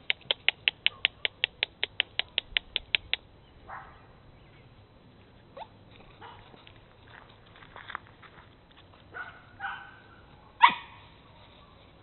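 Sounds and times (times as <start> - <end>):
rustle: 4.4 - 12.0.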